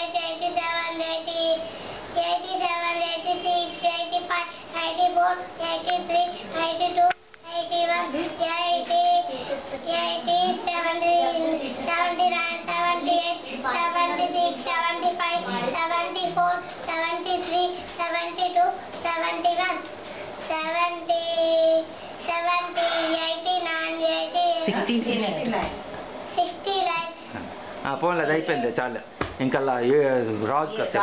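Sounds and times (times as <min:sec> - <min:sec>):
young boy singing: 0:00.0 - 0:24.8.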